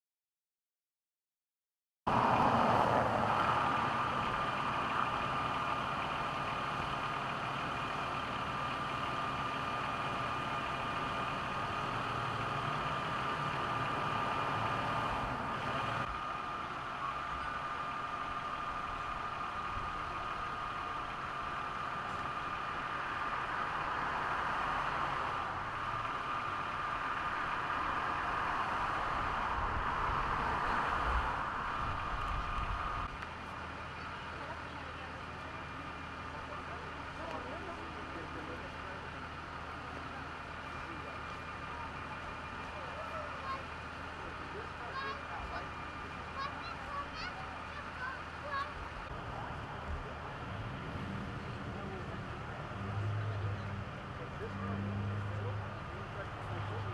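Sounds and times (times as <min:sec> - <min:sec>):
vehicle engine idling: 0:02.1 - 0:56.9.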